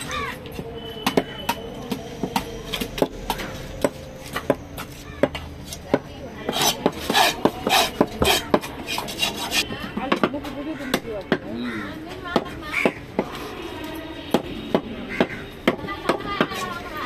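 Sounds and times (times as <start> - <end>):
knife scraping across wood: 6.5 - 9.7.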